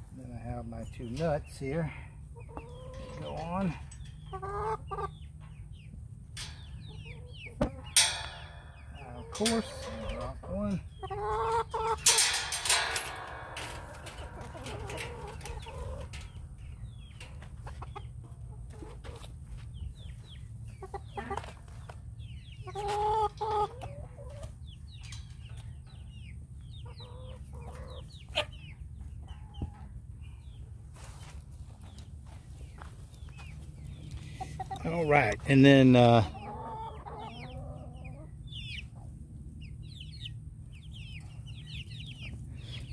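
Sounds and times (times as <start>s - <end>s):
chickens clucking: 0.0s - 42.9s.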